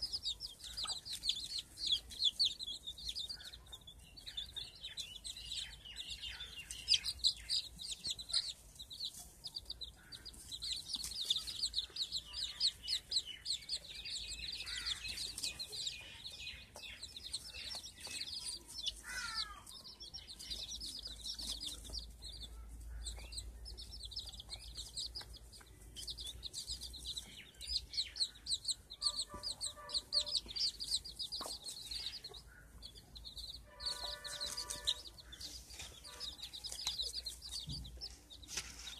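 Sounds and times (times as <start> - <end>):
chicks peeping: 0.0 - 38.9
hen clucking: 23.0 - 38.3.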